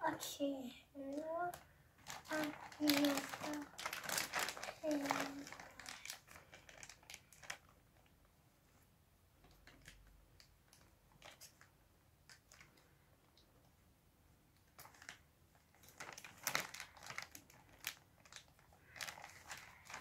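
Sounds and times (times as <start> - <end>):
plastic bag crinkling and rustling: 1.0 - 8.1, 9.4 - 11.7, 14.6 - 20.0.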